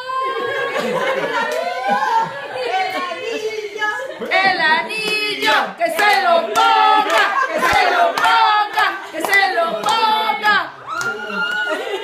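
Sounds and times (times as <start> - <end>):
people squealing and cheering: 0.0 - 4.0, 6.8 - 12.0
hand claps: 4.2 - 11.8.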